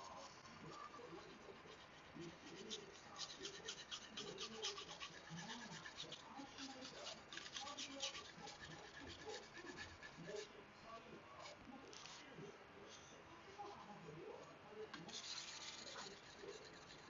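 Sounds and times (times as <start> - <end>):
knife scraping on whetstone: 2.7 - 10.2.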